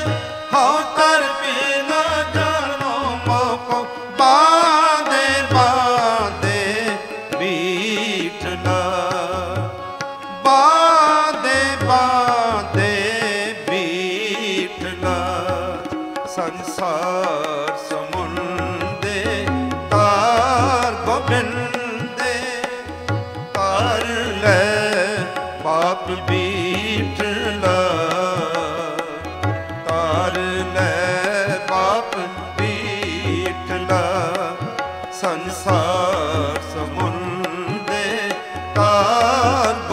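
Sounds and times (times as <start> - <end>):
tabla rhythm: 0.0 - 39.9
wavering sung melody: 14.2 - 34.6.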